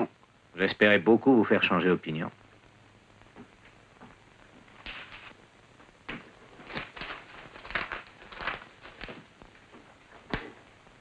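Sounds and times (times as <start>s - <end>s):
large paper sheet rustling: 6.2s - 9.3s.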